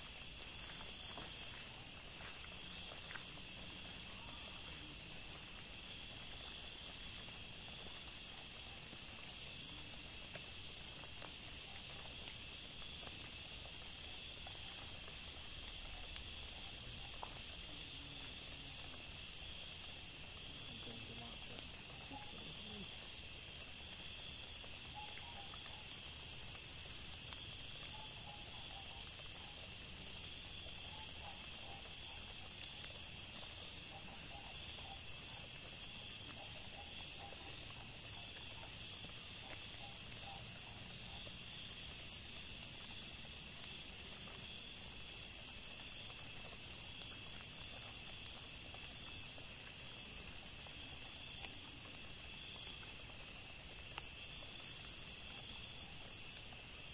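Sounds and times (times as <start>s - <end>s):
insects trilling: 0.0s - 56.9s
faint ticks: 2.2s - 19.1s, 42.4s - 56.6s.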